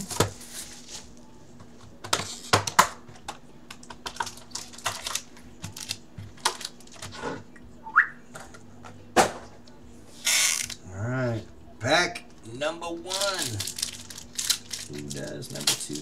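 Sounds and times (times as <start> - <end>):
foil card packs crinkling: 4.0 - 7.1, 12.9 - 16.0.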